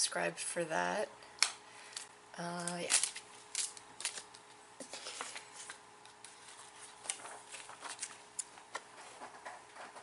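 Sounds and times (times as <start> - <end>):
paper booklet rustling: 2.6 - 10.0.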